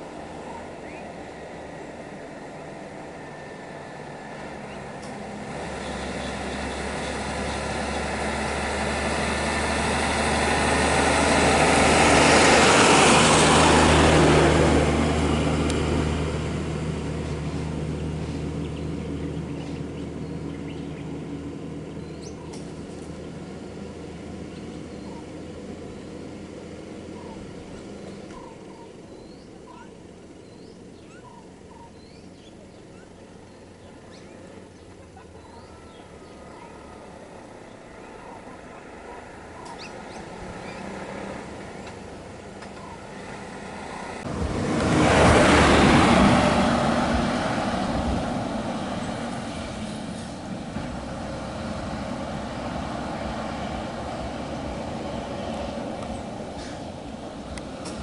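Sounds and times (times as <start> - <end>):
lorry driving past: 0.0 - 58.0
faint bird chirps: 27.1 - 37.0.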